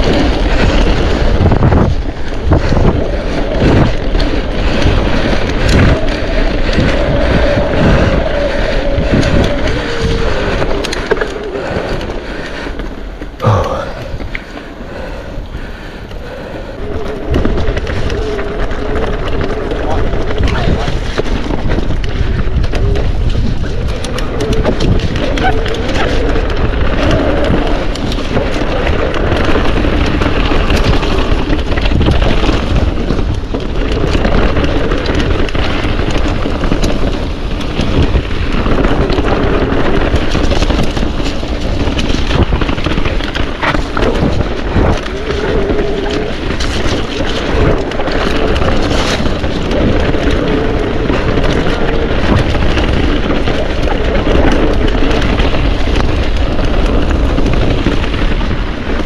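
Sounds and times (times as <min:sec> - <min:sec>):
tyres rumbling over trail: 0:00.0 - 0:59.0
wind buffeting microphone: 0:00.0 - 0:59.0
bike knocks and rattles: 0:17.3 - 0:59.0.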